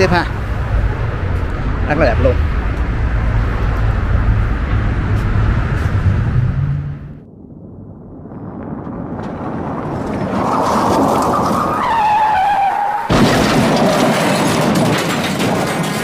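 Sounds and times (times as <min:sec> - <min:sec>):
boat engine whine: 0:00.0 - 0:11.8
wind: 0:00.0 - 0:16.0.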